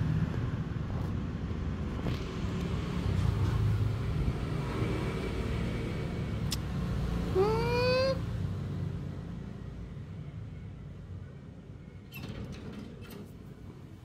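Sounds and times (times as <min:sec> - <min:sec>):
puppy whining: 0:07.3 - 0:08.2.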